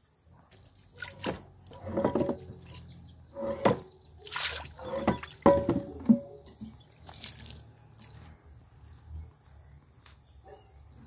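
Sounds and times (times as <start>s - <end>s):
water sloshing and splashing: 0.5s - 8.2s
iron pots knocking: 1.2s - 2.7s, 3.4s - 3.9s, 4.8s - 6.7s.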